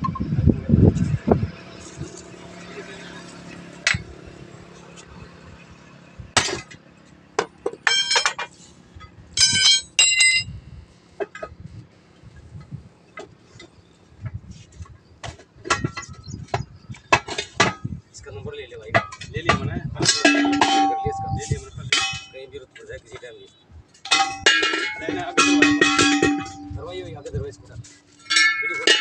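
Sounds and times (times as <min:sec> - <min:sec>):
sledgehammer clanking on metal: 0:06.4 - 0:06.8, 0:07.4 - 0:10.5, 0:18.9 - 0:22.5, 0:24.0 - 0:27.2, 0:27.8 - 0:29.0
light metal clanks and knocks: 0:07.4 - 0:10.5, 0:11.2 - 0:11.6, 0:15.2 - 0:18.0, 0:18.9 - 0:22.5, 0:24.0 - 0:27.2, 0:27.8 - 0:29.0.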